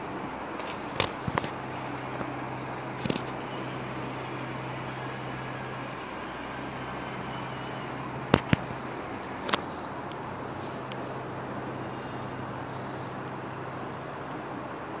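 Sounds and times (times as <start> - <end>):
constant hiss: 0.0 - 15.0
sharp clicks: 0.6 - 11.0
small electric motor humming: 0.6 - 12.2.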